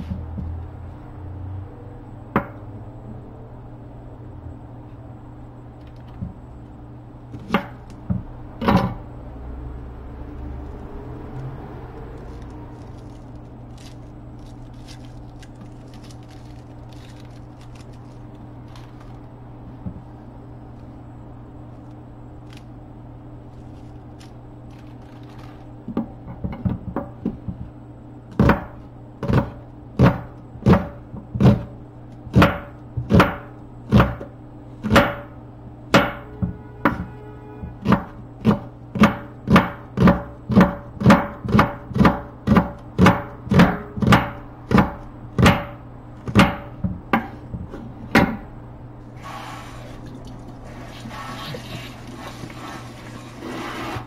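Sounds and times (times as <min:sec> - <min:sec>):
knife chopping on wooden board: 0:37.8 - 0:47.4.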